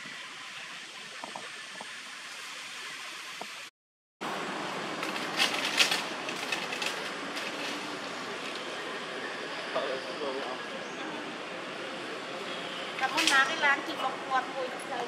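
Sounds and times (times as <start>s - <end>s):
outdoor background hiss: 0.0s - 15.0s
crackling rustles: 4.9s - 8.8s.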